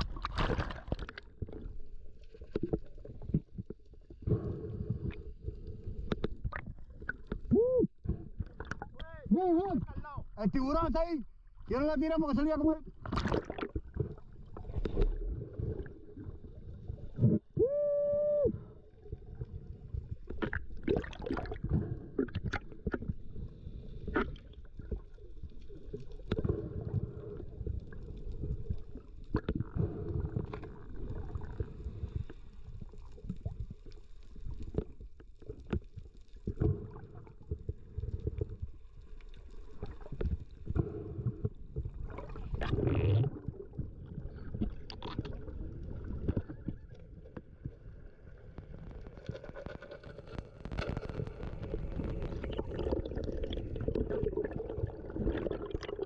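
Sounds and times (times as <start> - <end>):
muffled underwater rumble: 0.0 - 56.0
underwater clicks and knocks: 6.0 - 9.1.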